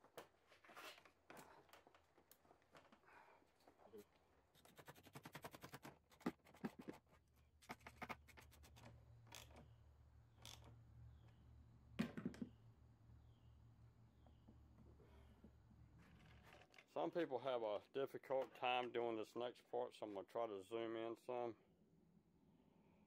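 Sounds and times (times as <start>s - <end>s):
tools and parts knocking: 12.0s - 12.6s.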